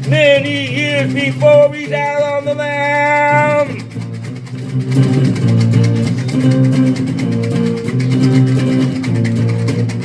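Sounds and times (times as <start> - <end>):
person singing: 0.0 - 3.8
blues guitar accompaniment: 0.0 - 10.0.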